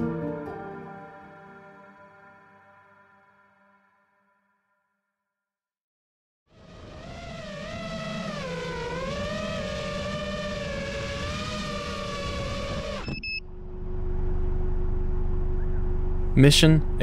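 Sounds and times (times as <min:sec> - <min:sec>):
drone motors whining: 0:06.5 - 0:16.4
low hum with faint tone: 0:12.9 - 0:17.0.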